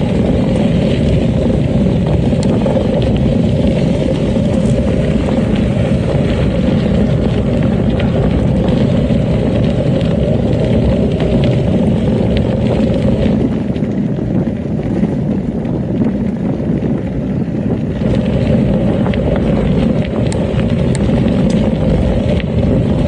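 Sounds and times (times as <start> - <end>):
bike tyres rolling on gravel: 0.0 - 23.0
wind buffeting microphone: 0.0 - 23.0
faint ticks: 18.0 - 22.7.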